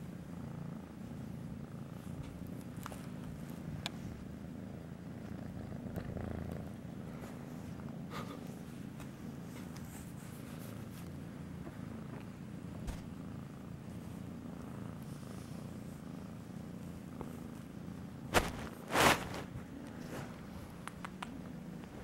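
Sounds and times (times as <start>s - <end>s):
kitten purring: 0.0s - 22.0s
faint click: 20.8s - 21.4s.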